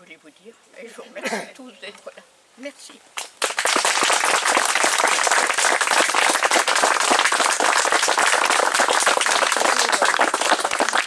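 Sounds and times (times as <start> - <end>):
crowd applauding: 3.2 - 11.0.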